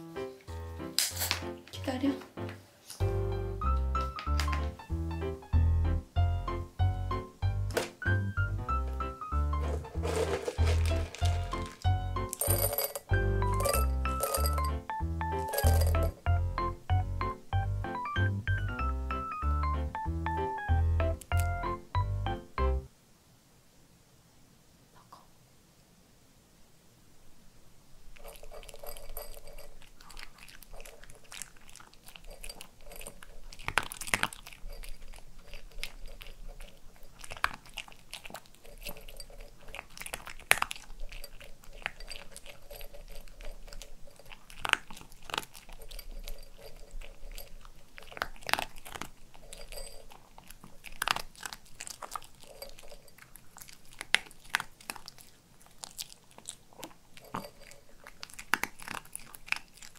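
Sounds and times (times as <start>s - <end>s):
dog crunching dry kibble: 1.0s - 1.8s, 9.5s - 16.3s, 28.2s - 59.9s.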